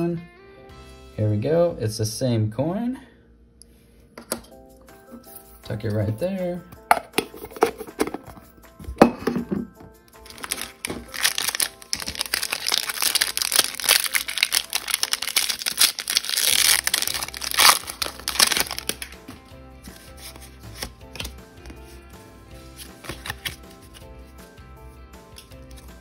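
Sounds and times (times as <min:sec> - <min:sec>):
background music: 0:00.0 - 0:26.0
foil pack tearing: 0:10.2 - 0:19.2, 0:22.8 - 0:24.0
foil pack crinkling: 0:10.2 - 0:21.4, 0:22.8 - 0:24.1.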